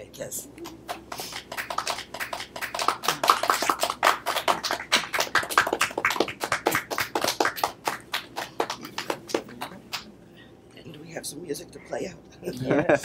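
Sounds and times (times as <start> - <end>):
small group applauding: 0.6 - 10.2.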